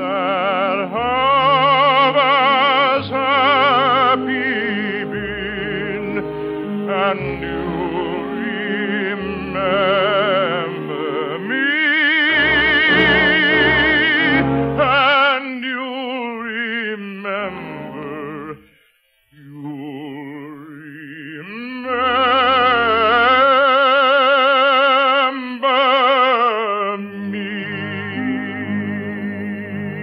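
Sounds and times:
person singing operatic ballad: 0.0s - 18.7s, 19.4s - 30.0s
orchestral accompaniment: 1.1s - 11.5s, 12.2s - 15.3s.

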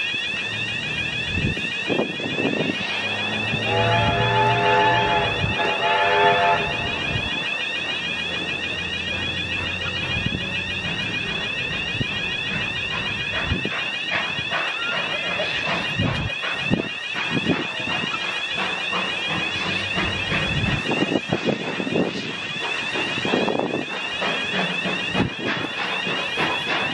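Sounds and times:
level-crossing alarm ringing: 0.0s - 26.9s
low thumps of passing train: 0.0s - 26.9s
steam locomotive whistle: 1.9s - 10.4s.

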